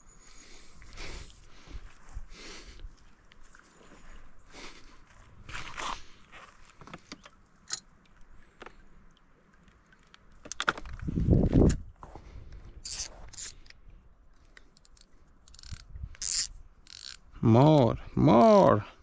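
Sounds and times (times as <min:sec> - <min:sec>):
fishing tackle clicks and clinks: 0:07.2 - 0:07.9, 0:12.8 - 0:13.8, 0:14.4 - 0:17.9.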